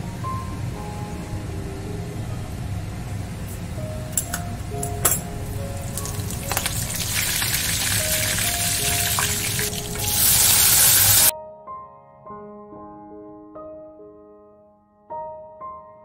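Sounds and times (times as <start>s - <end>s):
soft piano music: 0.0s - 16.0s
popping seeds: 5.5s - 11.3s
seeds sizzling in hot oil: 5.5s - 11.3s.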